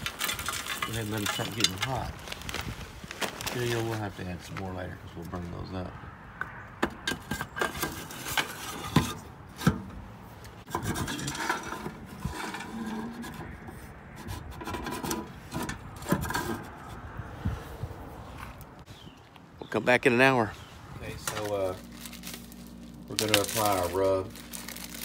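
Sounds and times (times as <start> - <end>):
wood chips rattling: 0.0 - 4.1, 21.2 - 25.0
metal tray scraping: 7.2 - 9.8, 10.6 - 16.9.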